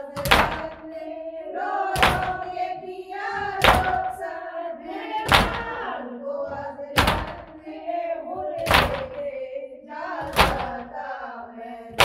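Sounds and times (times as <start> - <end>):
person singing a lament: 0.0 - 12.0
hands beating on chests: 0.2 - 0.9, 2.0 - 2.5, 3.4 - 4.1, 5.3 - 5.8, 7.0 - 7.6, 8.6 - 9.2, 10.2 - 10.9.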